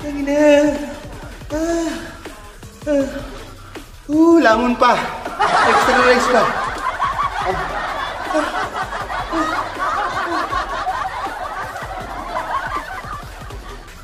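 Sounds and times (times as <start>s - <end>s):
laughter: 5.0s - 14.0s.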